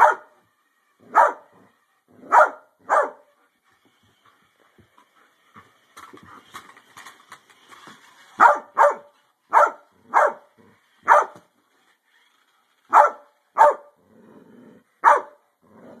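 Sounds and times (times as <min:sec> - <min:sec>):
dog barking: 0:00.0 - 0:00.3, 0:01.1 - 0:01.5, 0:02.3 - 0:03.2, 0:08.4 - 0:10.5, 0:11.1 - 0:11.4, 0:12.9 - 0:13.9, 0:15.0 - 0:15.4.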